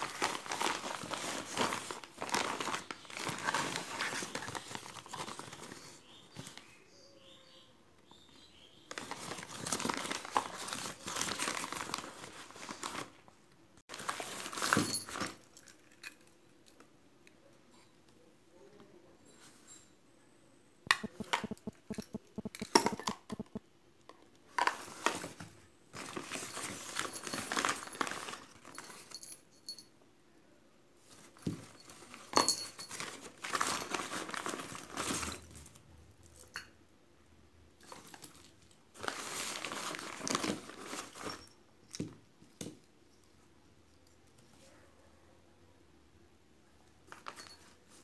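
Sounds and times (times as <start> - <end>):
paper wrapping crinkling: 0.0 - 6.6, 8.9 - 13.2, 13.9 - 15.5, 24.8 - 29.1, 31.6 - 35.8, 37.9 - 41.5
small hard items clicking: 20.9 - 23.6.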